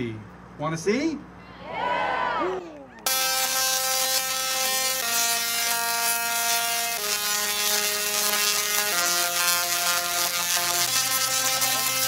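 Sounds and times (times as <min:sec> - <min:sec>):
tesla coils buzzing melody: 0:03.0 - 0:12.0.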